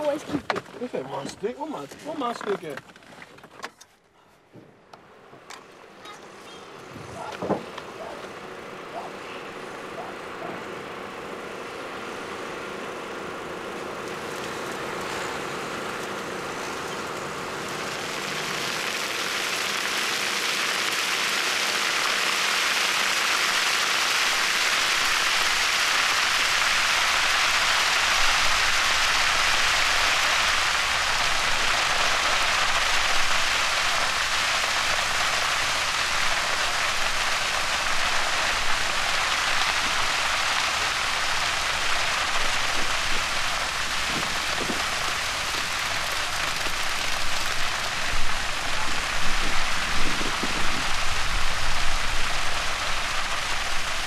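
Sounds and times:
crackle of burning flames: 0:11.5 - 0:54.0.

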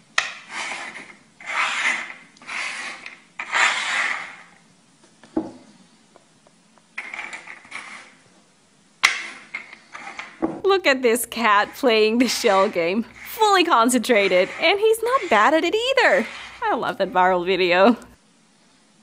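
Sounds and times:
shells scraping on wooden table: 0:00.2 - 0:04.6, 0:07.0 - 0:08.2, 0:09.0 - 0:17.6.

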